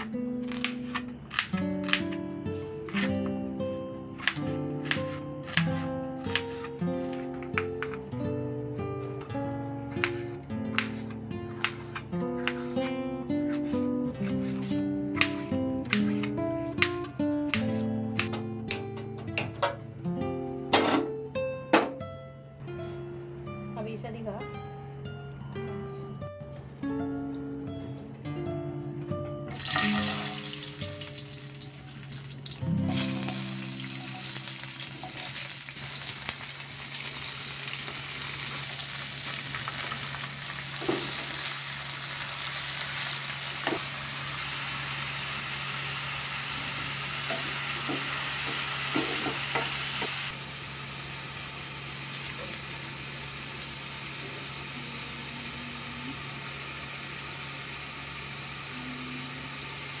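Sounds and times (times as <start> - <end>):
hot oil sizzling and spattering: 29.5 - 54.2.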